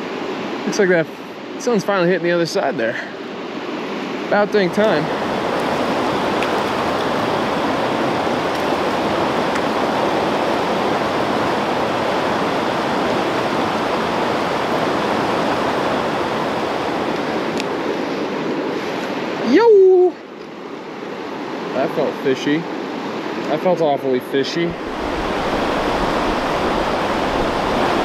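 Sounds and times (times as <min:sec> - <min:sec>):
river rushing over rocks: 0:04.3 - 0:19.7, 0:24.7 - 0:28.0.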